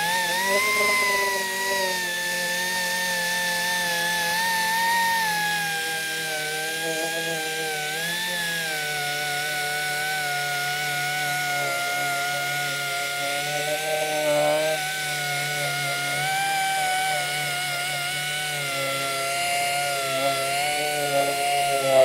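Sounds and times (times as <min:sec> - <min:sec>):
orbital sander whining on metal: 0:00.0 - 0:22.0.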